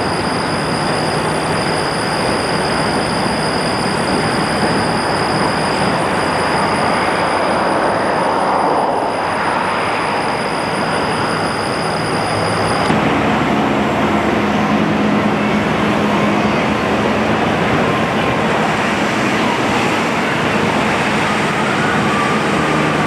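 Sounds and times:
propeller plane droning overhead: 0.0 - 23.0
steady rushing noise: 0.0 - 23.0.

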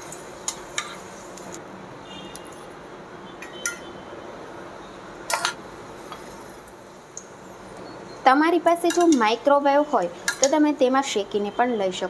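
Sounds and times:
tongs clinking on cookware: 0.0 - 1.0, 8.7 - 9.4, 10.2 - 10.7
steady low hiss: 0.0 - 2.0.

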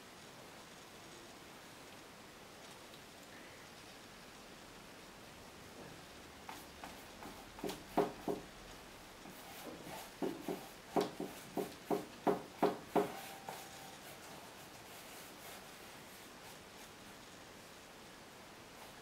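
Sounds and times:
paintbrush tapping on canvas: 6.5 - 8.5, 9.3 - 13.8.

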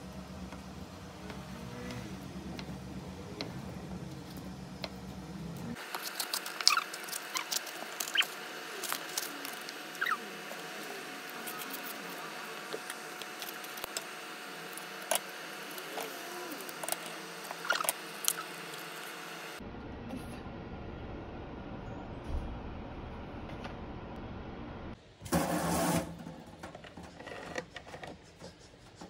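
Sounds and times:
paper carton tearing and crackling: 5.8 - 10.2.

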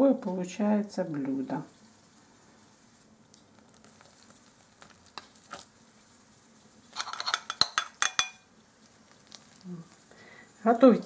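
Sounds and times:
spoon scraping glass dish: 6.9 - 8.4
spoon clinking on china plate: 7.0 - 8.4.

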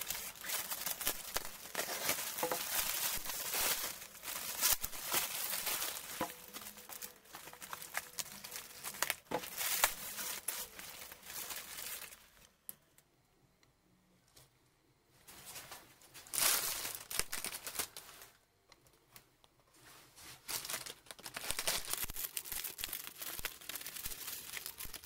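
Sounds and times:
plastic packaging crinkling and tearing: 0.0 - 12.8, 15.4 - 18.4, 20.2 - 25.0.

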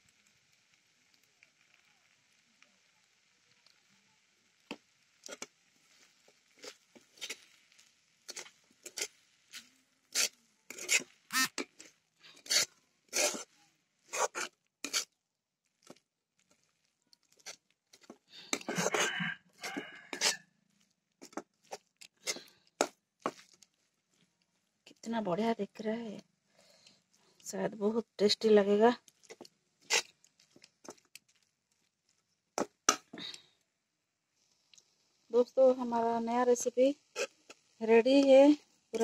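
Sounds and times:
spatula scraping metal pan: 5.2 - 5.5, 6.6 - 15.1, 17.4 - 20.4, 21.2 - 23.4, 29.2 - 30.1, 37.1 - 37.6.

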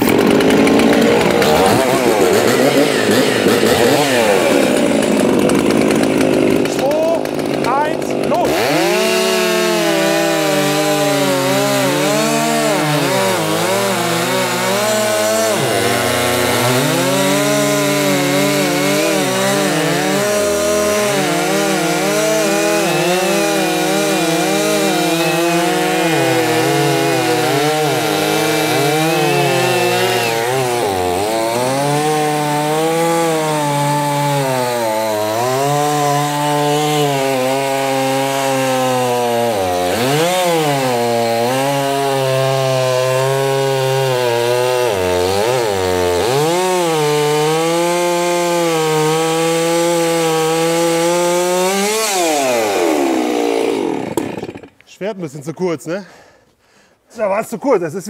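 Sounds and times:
chainsaws cutting log: 0.0 - 54.9.

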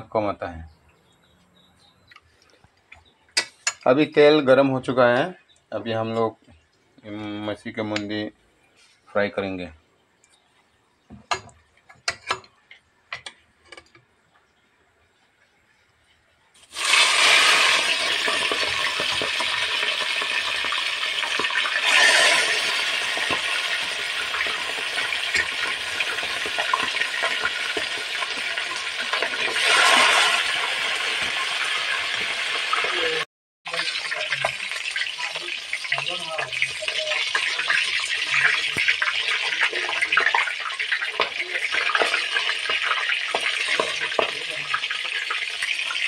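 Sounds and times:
fish sizzling in hot oil: 16.6 - 46.0.

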